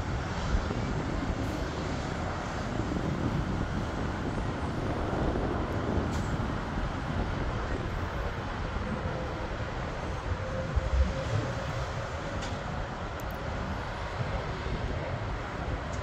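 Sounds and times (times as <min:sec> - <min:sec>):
jet engines rumbling: 0:00.0 - 0:16.0
road traffic: 0:00.0 - 0:16.0.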